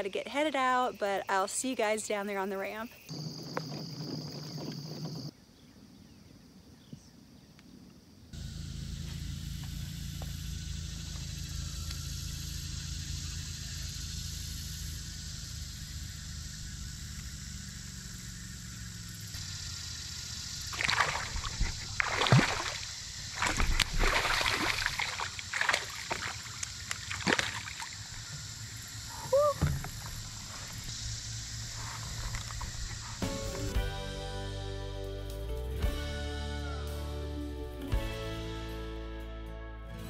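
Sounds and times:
steady low hum: 8.3s - 33.9s
fish splashing at surface: 20.7s - 28.1s.

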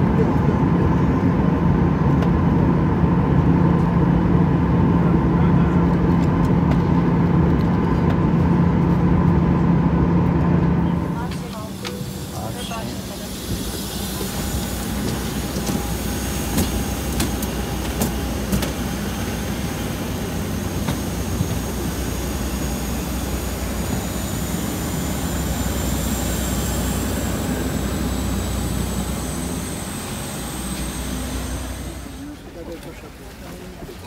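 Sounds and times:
low engine rumble: 0.0s - 34.0s
high rising whine: 8.6s - 32.6s.

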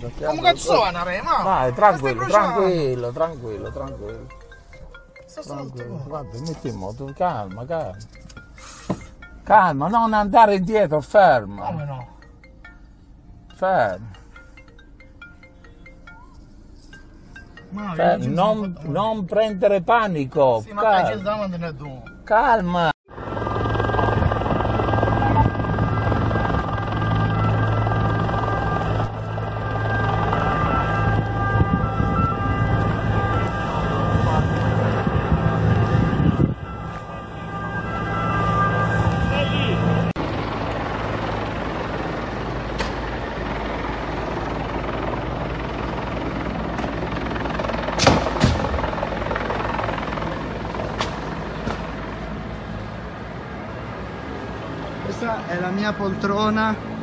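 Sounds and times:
fire rumbling: 23.1s - 54.8s
low engine drone with flutter: 23.1s - 57.0s.

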